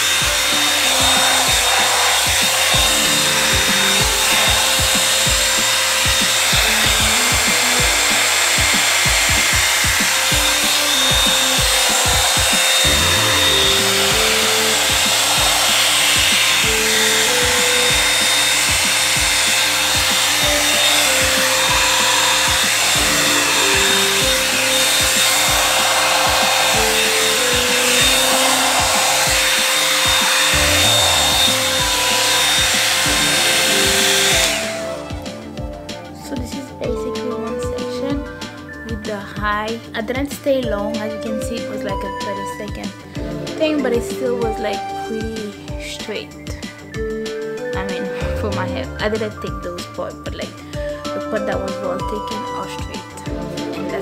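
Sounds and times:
hair dryer fan hiss and whine: 0.0s - 38.8s
background music with beat: 0.0s - 54.0s.

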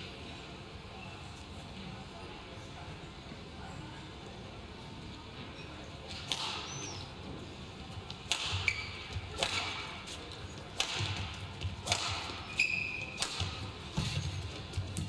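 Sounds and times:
rackets hitting shuttlecock: 6.1s - 7.1s, 8.1s - 15.0s
shoes squeaking on court: 8.5s - 15.0s
footwork thuds: 13.3s - 15.0s.

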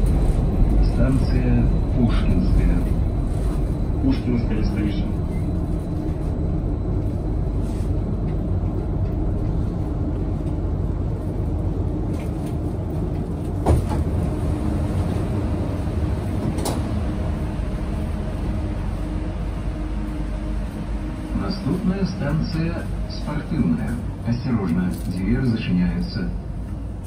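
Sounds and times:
train car rumble and hum: 0.0s - 27.0s
sliding doors clunk: 13.6s - 14.4s.

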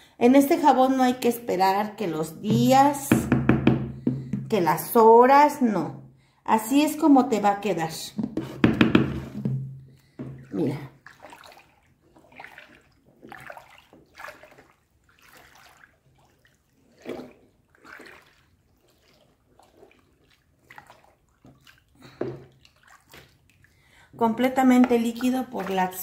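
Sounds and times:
liquid soap pouring and dripping: 9.3s - 23.8s, 24.6s - 26.0s.

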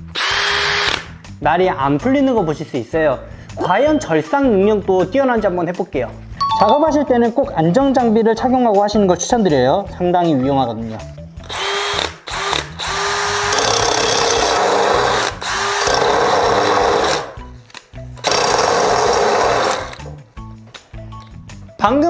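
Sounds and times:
drill cutting disc grinding steel: 11.5s - 17.4s, 18.2s - 20.0s.

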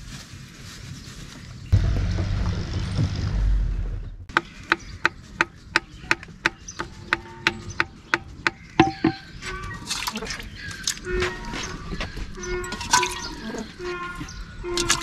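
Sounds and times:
wooden stick knocking in clay pot: 4.3s - 9.3s.

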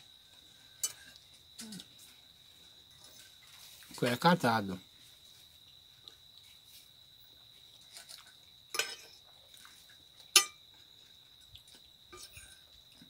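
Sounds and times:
metal fork clinking on plate: 8.8s - 9.1s, 10.4s - 10.6s.

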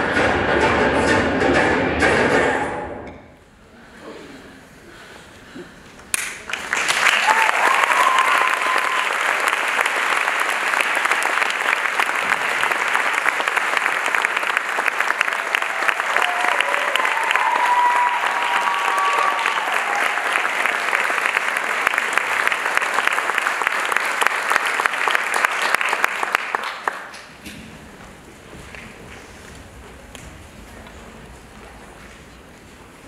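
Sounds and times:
audience applauding: 6.1s - 27.3s.

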